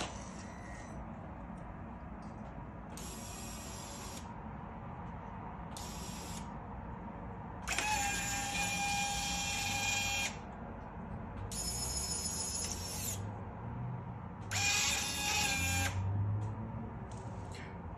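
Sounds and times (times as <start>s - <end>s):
toy truck motor whining: 7.6s - 10.4s, 11.5s - 13.3s, 14.4s - 16.0s.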